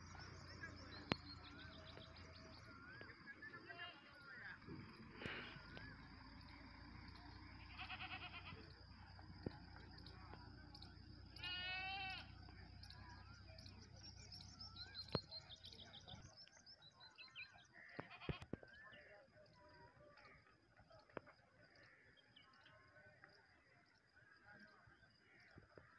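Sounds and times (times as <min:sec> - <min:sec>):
farm animal calling: 0:00.0 - 0:16.3, 0:17.6 - 0:18.6
faint chirps: 0:00.0 - 0:25.9.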